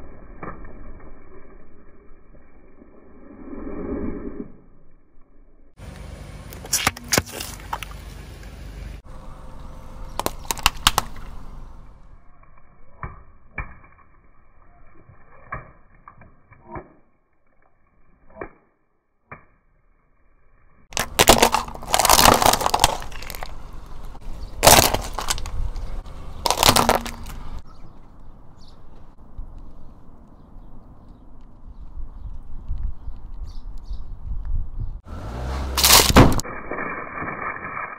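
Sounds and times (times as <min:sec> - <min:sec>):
tyre crushing plastic packs: 0:20.9 - 0:23.6, 0:24.6 - 0:27.6, 0:35.8 - 0:36.4.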